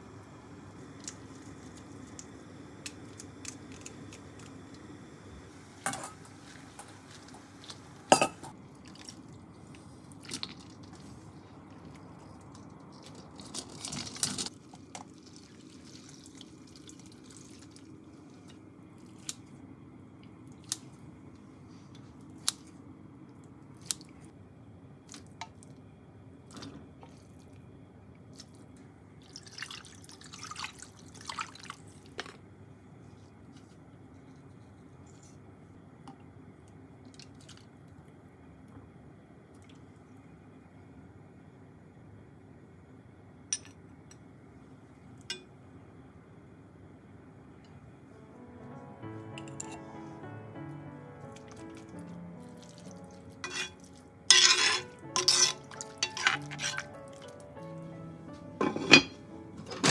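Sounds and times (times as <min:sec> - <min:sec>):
low steady hum: 0:00.0 - 0:59.9
utensils clinking against pots: 0:05.8 - 0:06.9, 0:53.4 - 0:57.3, 0:58.6 - 0:59.9
water pouring into pot: 0:13.0 - 0:17.9, 0:29.2 - 0:31.8.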